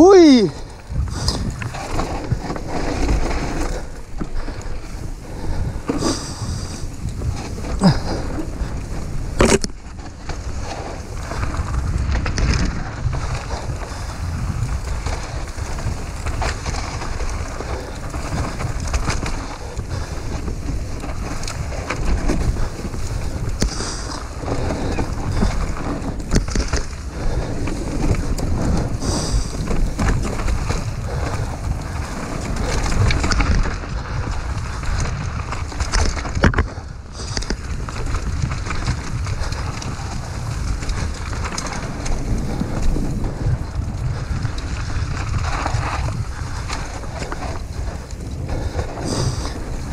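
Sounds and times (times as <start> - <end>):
bike rattling over bumps: 0.0 - 49.9
tyres rumbling over dirt: 0.0 - 49.9
wind buffeting microphone: 0.0 - 49.9.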